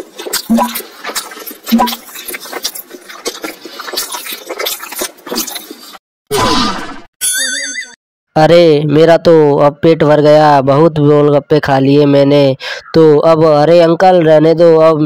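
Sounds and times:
cartoon crunching and munching: 0.0s - 7.0s.

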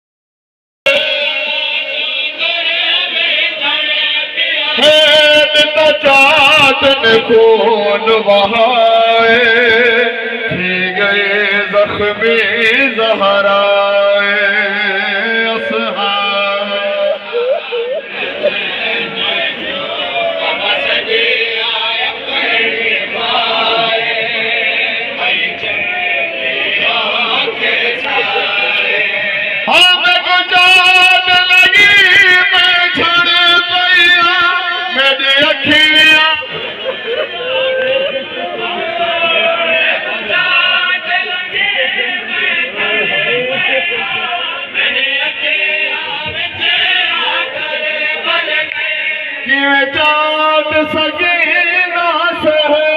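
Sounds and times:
men singing a lament: 0.9s - 52.9s
held drone note: 17.0s - 18.6s.

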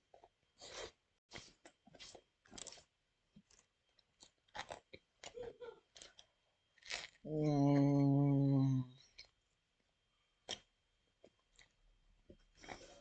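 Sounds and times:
faint chewing crunches: 0.1s - 7.2s, 10.4s - 13.0s.

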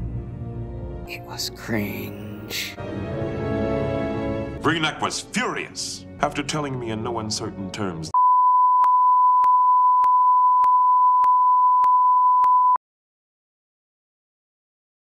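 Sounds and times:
high censor beep: 8.2s - 12.8s.

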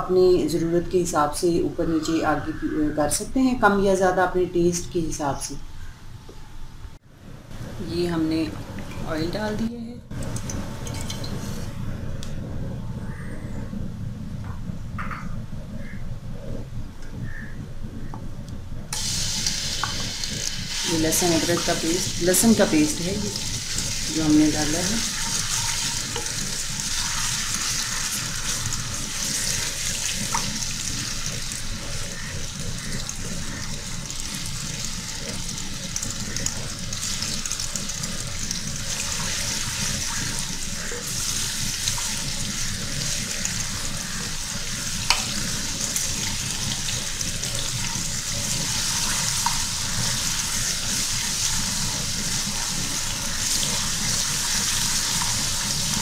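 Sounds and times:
garlic sizzling in hot oil: 18.9s - 56.0s.

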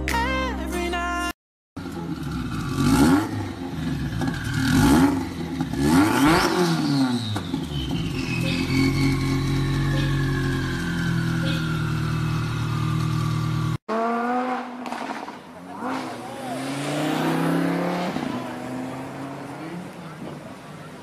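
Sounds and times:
pop song: 0.0s - 1.4s
car engine revving fly-bys: 2.6s - 20.2s.

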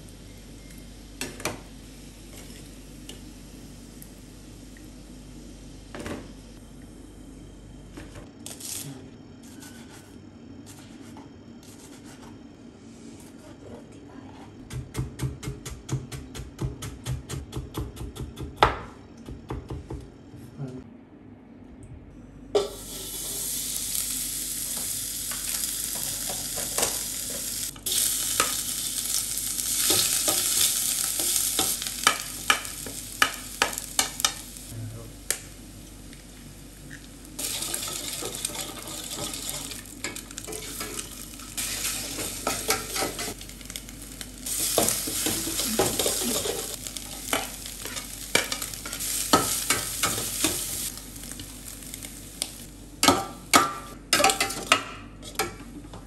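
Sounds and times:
food sizzling in a pan: 22.6s - 54.0s.

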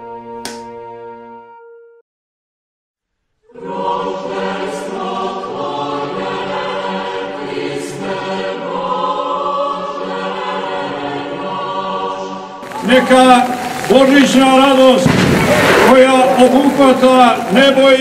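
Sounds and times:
choir singing a chant: 3.5s - 13.2s.

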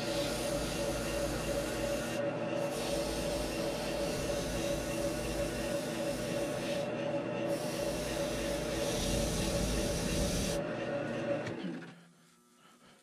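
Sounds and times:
abrasive hissing on spinning foam: 0.0s - 6.9s, 7.5s - 10.6s
wood lathe humming: 0.0s - 11.3s.

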